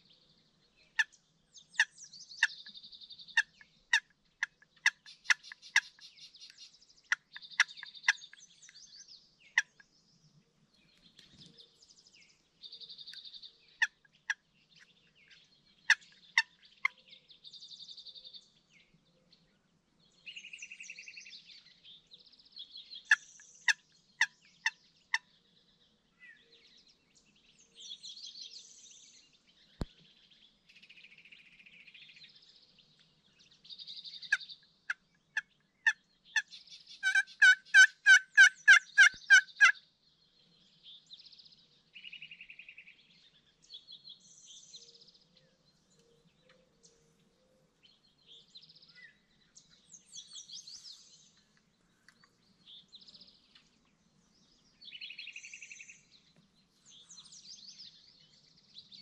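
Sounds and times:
small birds singing trills: 0.0 - 59.0
turkey yelps: 37.0 - 39.7
turkey calling: 37.0 - 39.8.

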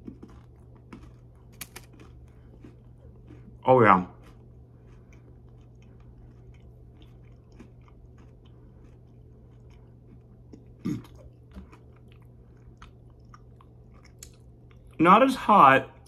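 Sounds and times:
person chewing candy bar: 0.0 - 15.0
faint steady low hum: 0.0 - 16.0.

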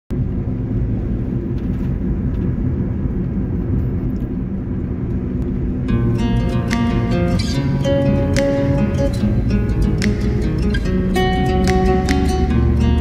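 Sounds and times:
car road and engine rumble: 0.1 - 13.0
music: 5.8 - 13.0.

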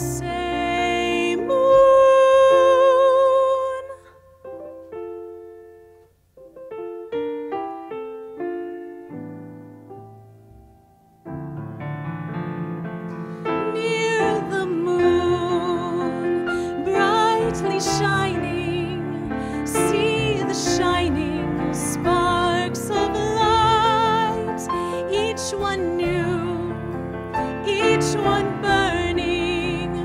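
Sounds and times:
woman singing with vibrato: 0.0 - 4.2, 13.6 - 30.0
piano accompaniment: 0.0 - 30.0.

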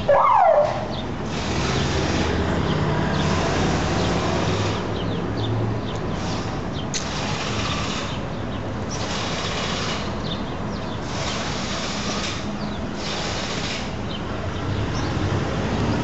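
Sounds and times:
street traffic: 0.0 - 16.0
sharp click: 6.9 - 7.2.

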